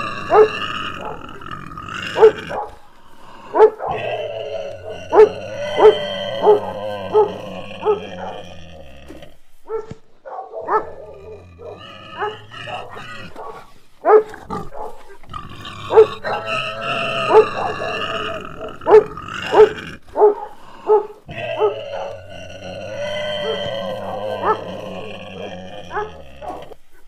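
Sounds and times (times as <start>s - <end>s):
dog growling: 0.0s - 9.4s, 10.6s - 27.0s
dog barking: 0.3s - 1.3s, 2.2s - 2.8s, 3.5s - 4.2s, 4.8s - 8.4s, 9.6s - 15.2s, 15.9s - 16.6s, 17.2s - 22.2s, 23.4s - 24.8s, 25.9s - 26.8s.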